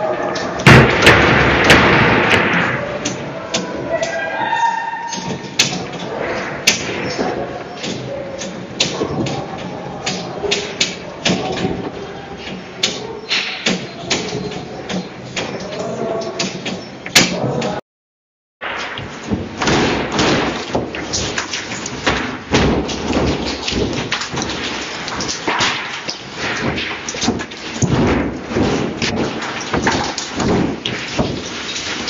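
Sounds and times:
building rattling in earthquake: 0.0 - 3.9, 18.6 - 32.0.

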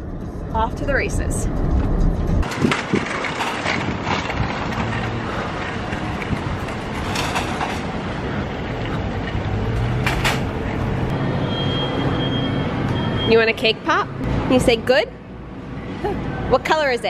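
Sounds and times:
stroller wheels rolling on asphalt: 1.6 - 11.1.

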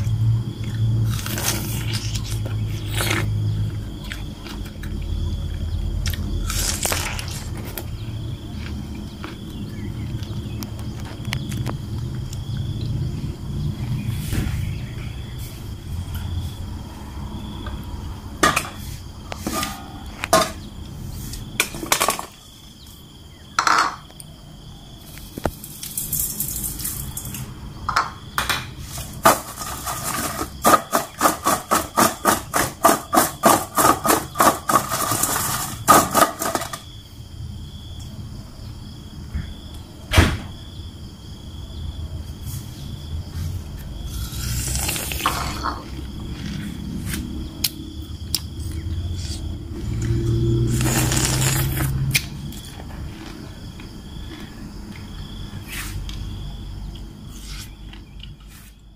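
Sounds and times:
fruit shaken in a metal bowl: 28.9 - 36.8.

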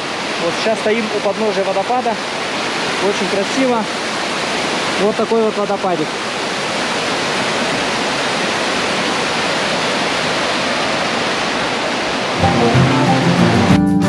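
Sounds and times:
waterfall rushing over rocks: 0.0 - 13.6
music: 12.4 - 14.0.

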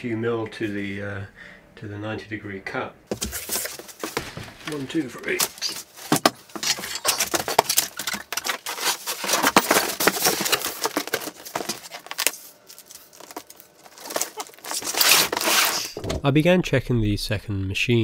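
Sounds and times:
cardboard box rustling and scraping: 3.1 - 16.0.

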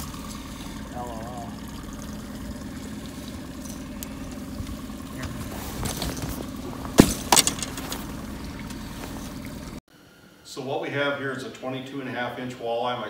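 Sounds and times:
outboard motor idling: 0.0 - 9.8.

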